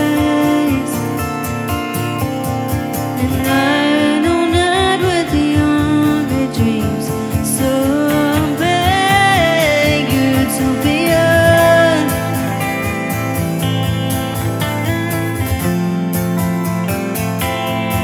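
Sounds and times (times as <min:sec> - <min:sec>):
person singing: 0:00.0 - 0:02.2, 0:02.8 - 0:13.7
strummed guitars: 0:00.0 - 0:18.0.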